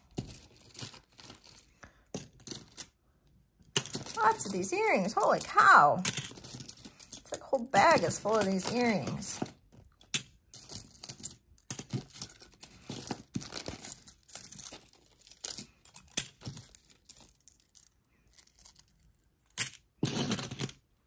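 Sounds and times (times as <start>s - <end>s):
metal earrings jangling: 3.8s - 9.5s.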